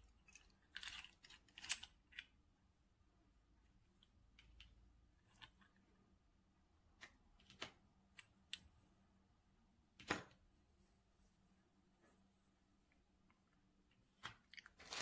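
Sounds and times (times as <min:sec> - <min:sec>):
metal screws clicking on table: 0:00.3 - 0:02.3.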